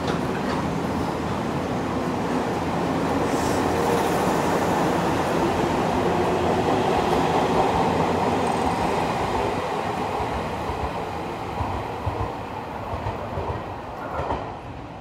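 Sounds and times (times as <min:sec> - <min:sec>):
train wheels clickety-clack: 0:00.0 - 0:00.9, 0:06.4 - 0:09.5, 0:10.1 - 0:14.8.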